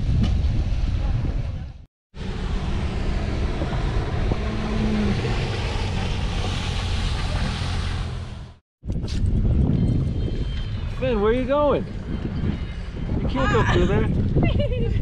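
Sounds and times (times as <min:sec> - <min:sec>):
jet ski engine droning: 0:02.2 - 0:08.4
water spray: 0:05.2 - 0:08.5.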